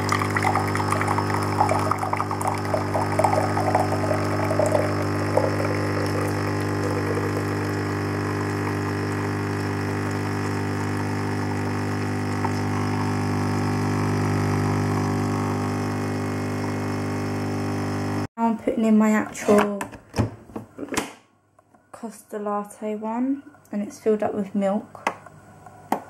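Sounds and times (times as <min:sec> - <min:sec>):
liquid splashing into mug: 0:00.0 - 0:07.8
coffee machine pump humming: 0:00.0 - 0:18.3.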